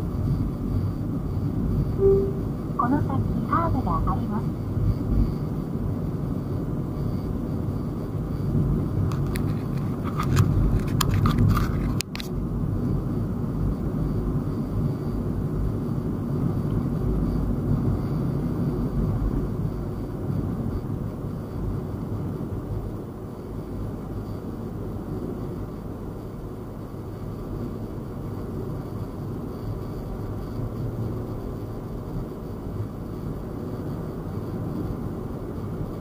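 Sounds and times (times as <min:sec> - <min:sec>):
car road noise rumble: 0:04.6 - 0:23.0.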